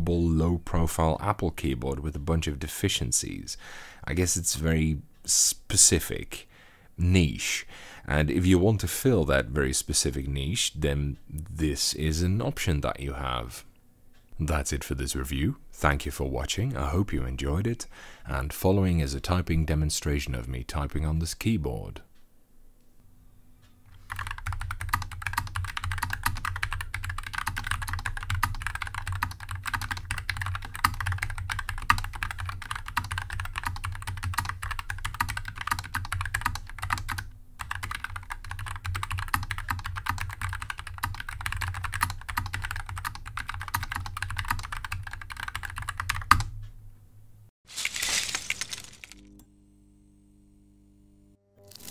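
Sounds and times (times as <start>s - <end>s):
keyboard typing: 24.0s - 46.6s.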